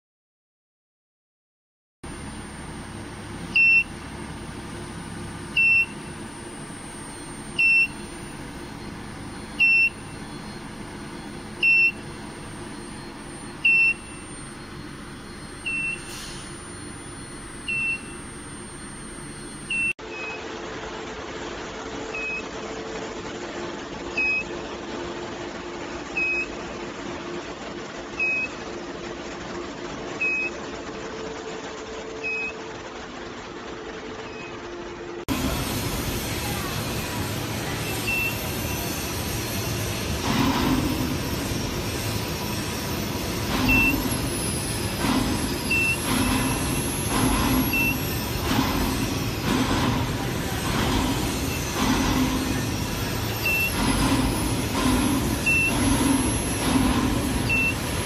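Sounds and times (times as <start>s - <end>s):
machine hum and hiss: 2.0s - 58.0s
short high beeps: 2.4s - 20.4s, 37.8s - 38.7s, 43.6s - 44.2s, 45.7s - 48.6s, 53.4s - 53.8s.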